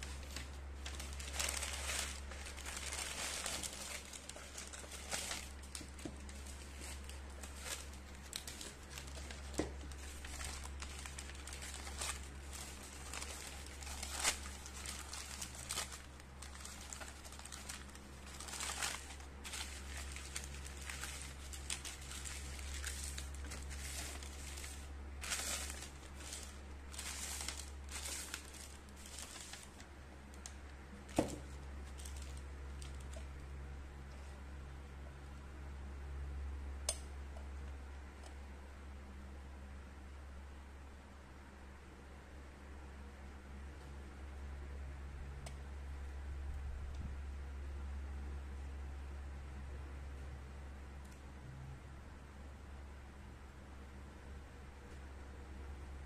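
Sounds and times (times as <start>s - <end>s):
tissue paper rustling: 0.0s - 29.9s, 31.0s - 33.2s
low steady hum: 0.0s - 56.0s.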